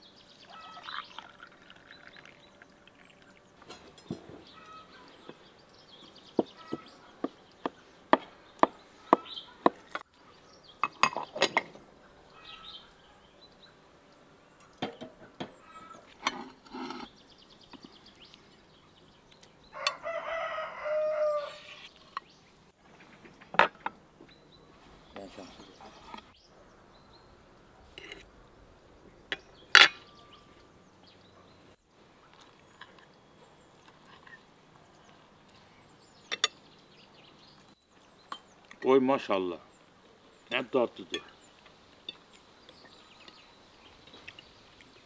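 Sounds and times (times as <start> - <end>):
rooster crowing: 19.7 - 21.8.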